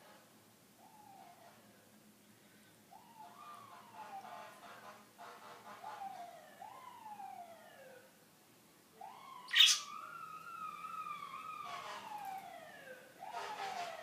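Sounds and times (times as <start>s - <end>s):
faint siren wail: 0.8s - 1.8s, 2.9s - 5.0s, 5.6s - 8.2s, 8.9s - 14.0s
budgerigar chirp: 9.5s - 9.9s.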